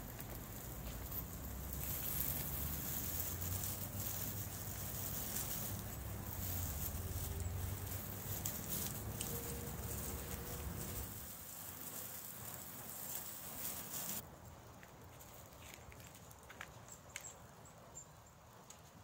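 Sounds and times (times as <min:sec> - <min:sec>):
hose spraying water: 0:00.0 - 0:14.2
water falling through foliage: 0:00.0 - 0:14.2.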